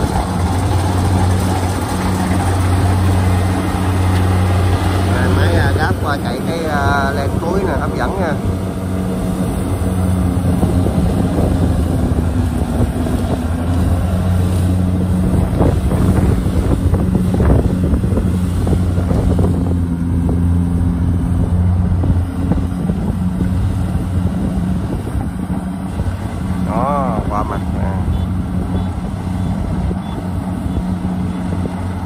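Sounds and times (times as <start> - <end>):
cutting and threshing clatter: 0.0 - 20.6
combine harvester engine humming: 0.0 - 32.0.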